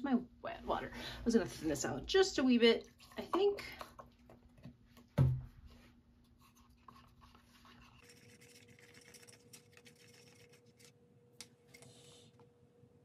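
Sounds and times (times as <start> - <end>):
stick stirring paint in plastic cup: 2.8 - 5.1, 5.7 - 12.1.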